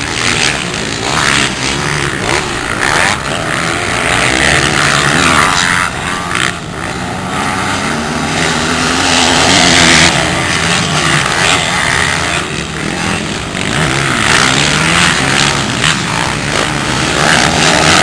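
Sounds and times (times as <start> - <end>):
dirt bike engines revving: 0.0 - 18.0.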